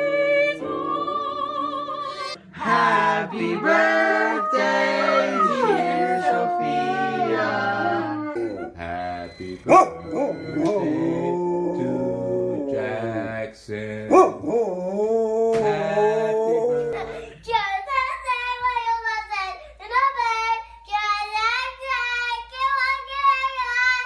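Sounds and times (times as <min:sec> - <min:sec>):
person singing: 0:00.0 - 0:09.4, 0:10.6 - 0:13.4
child singing: 0:02.6 - 0:08.3, 0:16.9 - 0:24.0
dog howling: 0:03.4 - 0:08.7, 0:09.7 - 0:13.2.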